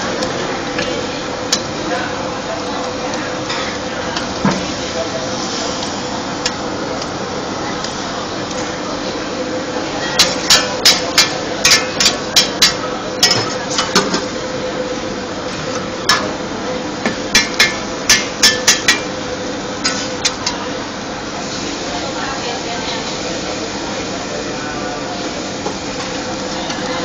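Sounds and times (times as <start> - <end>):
steady background hum: 0.0 - 27.0
metal spatula clanking on wok: 10.2 - 14.1, 17.3 - 19.1.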